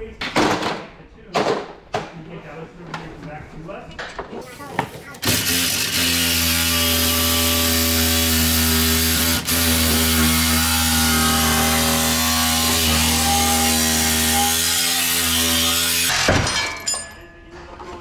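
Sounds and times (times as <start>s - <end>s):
reciprocating saw cutting: 5.2s - 16.3s.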